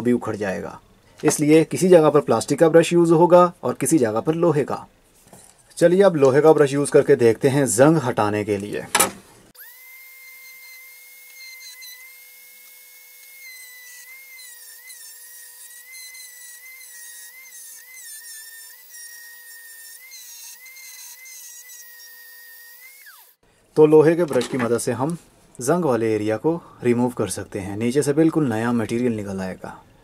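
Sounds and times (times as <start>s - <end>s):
rotary tool motor whine: 9.6s - 23.4s.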